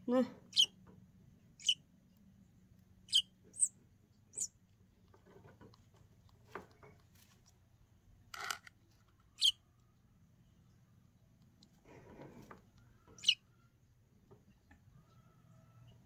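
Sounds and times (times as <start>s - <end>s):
fledgling begging peeps: 0.5s - 0.8s, 1.6s - 1.9s, 3.1s - 4.6s, 9.3s - 9.7s, 12.8s - 13.5s.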